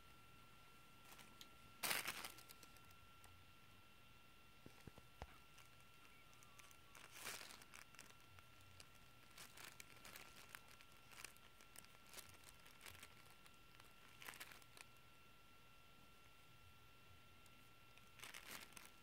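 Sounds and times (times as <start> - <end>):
plastic sheet crinkling: 1.0 - 3.0, 4.7 - 15.0, 17.9 - 19.0.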